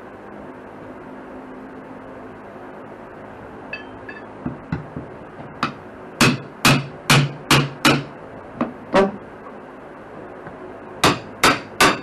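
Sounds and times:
hammer striking wood: 4.5 - 9.2, 11.0 - 12.0.

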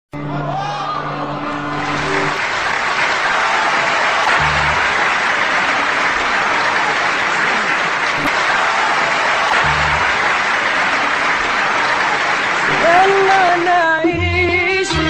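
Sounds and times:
audience applauding: 1.2 - 14.0
low instrumental note: 4.4 - 4.9, 9.6 - 10.0.

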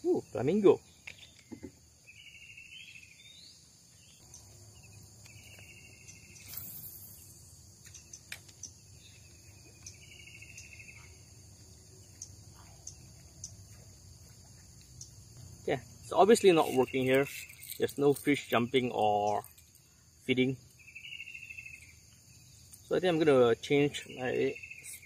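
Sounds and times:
high insect drone: 0.0 - 25.0.

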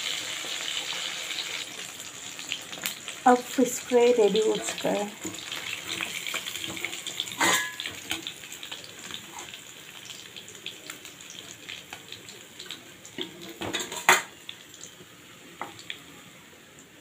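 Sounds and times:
hot oil crackling and sizzling: 0.0 - 17.0.

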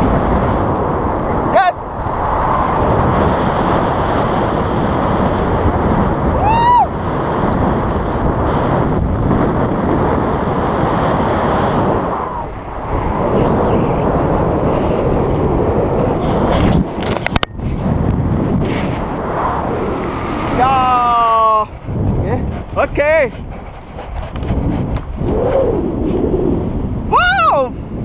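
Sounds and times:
wind buffeting microphone: 0.0 - 28.0
high-pitched squeal: 1.6 - 2.7.

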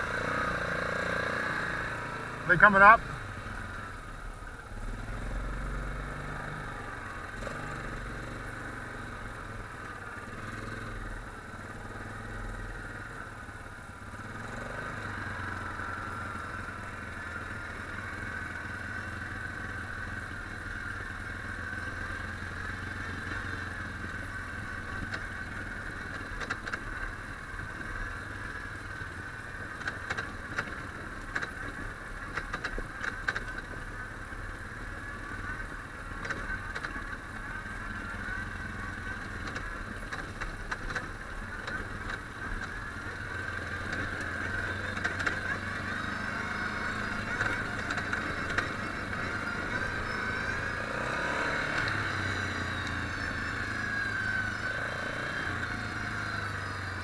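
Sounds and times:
quad engine running: 0.0 - 57.0
sharp clicks and rattles: 24.0 - 28.0, 29.0 - 34.0, 35.6 - 37.4, 39.2 - 45.7, 46.6 - 51.0.

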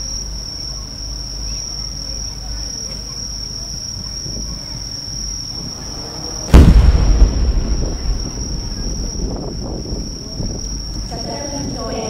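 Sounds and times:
crickets trilling: 0.0 - 12.0
rumbling echo: 5.5 - 11.2
firework shell bursting boom: 6.4 - 11.0.

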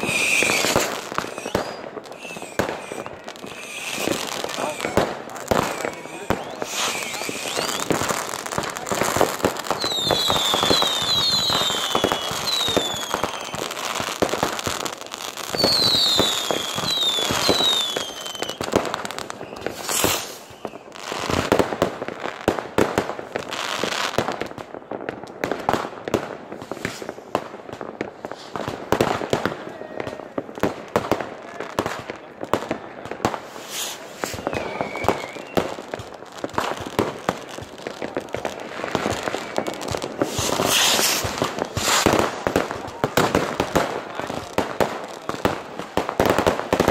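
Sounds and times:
short falling whistles: 0.0 - 5.0, 5.7 - 8.1, 9.8 - 13.8, 19.3 - 20.8, 33.7 - 35.7
fireworks bangs and crackling: 0.0 - 46.9.

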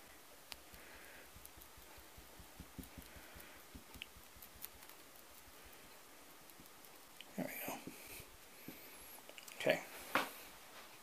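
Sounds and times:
light taps: 1.4 - 4.7.

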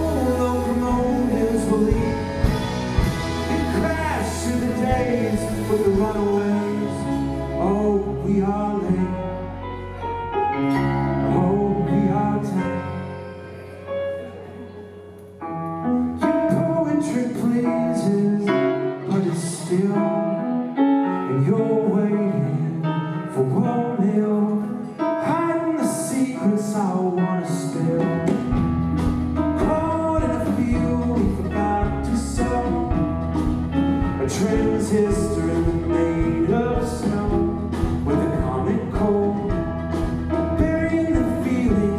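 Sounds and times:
male lead vocal: 0.0 - 10.0, 10.7 - 13.5, 16.3 - 20.5, 21.1 - 28.6, 29.5 - 41.9
heavy bass line: 0.0 - 12.6
live indie band: 0.0 - 41.9.

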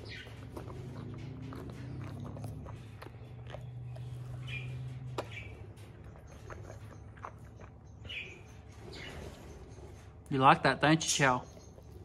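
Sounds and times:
dog chewing and smacking: 0.0 - 9.1.

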